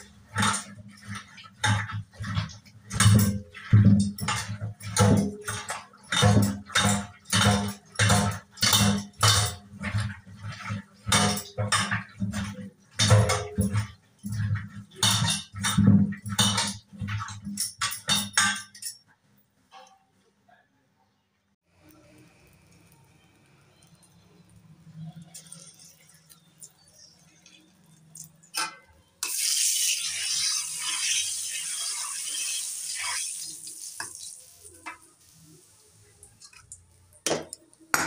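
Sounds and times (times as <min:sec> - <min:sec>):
metal pot clattering in sink: 0:00.0 - 0:19.0, 0:25.0 - 0:32.5
scrubbing inside a metal pot: 0:00.0 - 0:19.0, 0:21.9 - 0:37.9.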